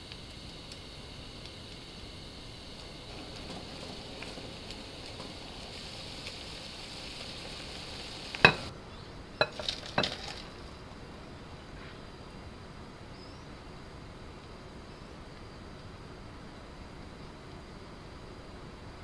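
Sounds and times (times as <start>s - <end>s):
noodles sizzling in frying pan: 0.0s - 8.7s, 9.4s - 11.2s
pan knocking against ceramic bowl: 8.4s - 8.7s, 9.4s - 10.2s.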